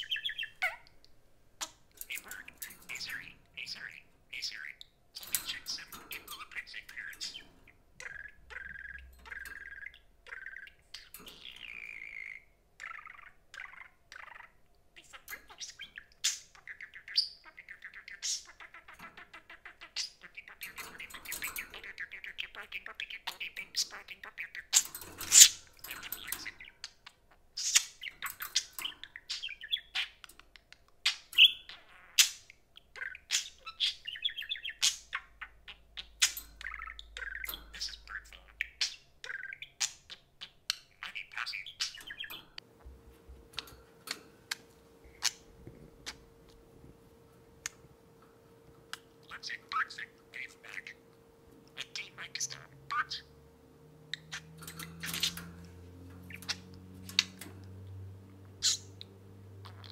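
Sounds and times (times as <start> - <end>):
budgerigars chirping and warbling: 0.0 - 42.6, 43.4 - 46.6, 48.6 - 59.9.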